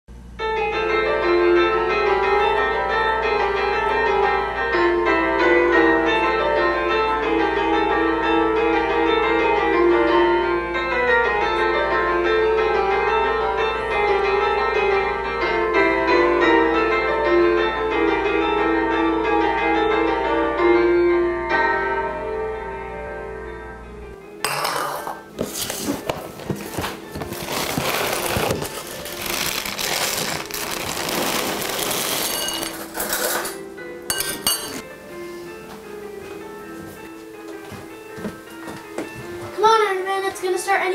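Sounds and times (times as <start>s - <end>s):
film score piano music: 0.2s - 40.9s
plastic bag rustling: 25.4s - 33.5s
dry cereal rattling into a bowl: 27.4s - 33.5s.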